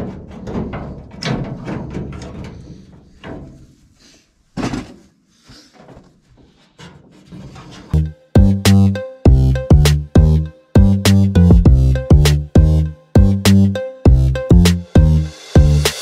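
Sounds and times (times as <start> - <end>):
clunks and rattles of steel door: 0.0 - 3.7.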